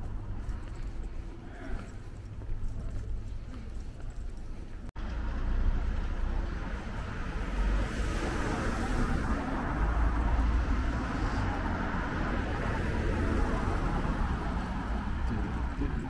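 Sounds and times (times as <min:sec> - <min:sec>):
cars driving by: 0:04.9 - 0:16.0.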